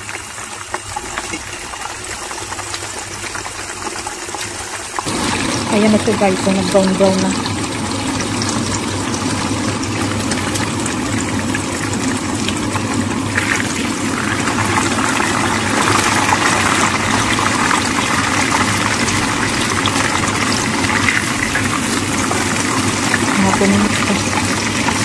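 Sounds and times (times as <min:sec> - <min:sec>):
chicken sizzling in frying pan: 0:00.0 - 0:25.0.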